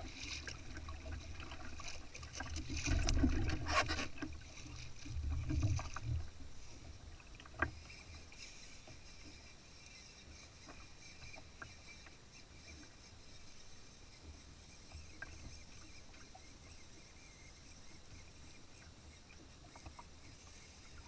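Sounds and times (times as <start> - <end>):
faint small clicks: 7.3 - 13.6, 14.2 - 21.0.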